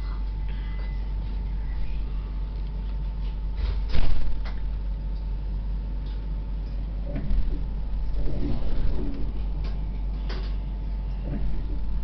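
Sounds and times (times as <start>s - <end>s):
tram rumble on rails: 7.0s - 10.5s, 11.2s - 12.0s.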